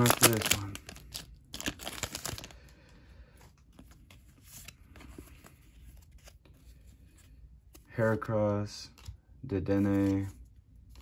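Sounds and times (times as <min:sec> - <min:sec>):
trading cards rustling and clicking: 0:00.0 - 0:02.5, 0:03.5 - 0:11.0
foil wrapper crinkling: 0:00.0 - 0:02.6.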